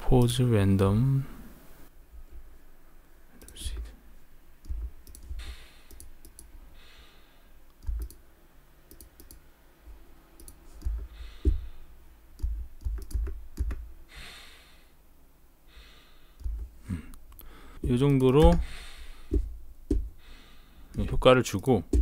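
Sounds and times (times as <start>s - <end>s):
soft breaths: 1.1s - 7.8s, 9.8s - 12.8s, 13.7s - 21.2s
computer mouse clicks: 3.4s - 3.9s, 4.6s - 6.5s, 7.7s - 8.2s, 8.9s - 9.4s, 10.4s - 11.6s, 12.4s - 13.8s
keyboard taps: 12.4s - 13.8s, 17.8s - 18.6s, 19.3s - 20.1s.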